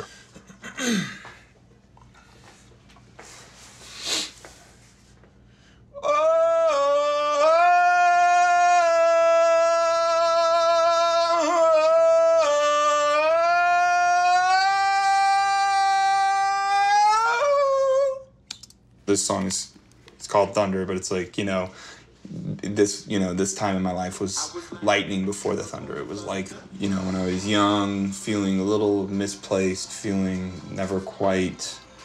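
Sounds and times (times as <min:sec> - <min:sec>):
breaths: 0:05.4 - 0:05.9, 0:21.7 - 0:22.2
man singing wordless high notes: 0:06.0 - 0:18.2.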